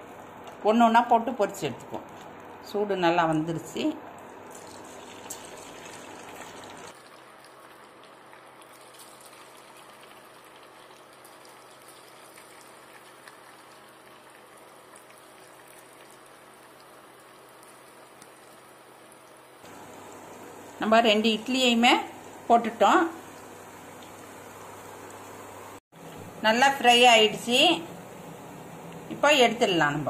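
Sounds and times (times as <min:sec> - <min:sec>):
food sizzling in hot oil: 0:04.5 - 0:25.8.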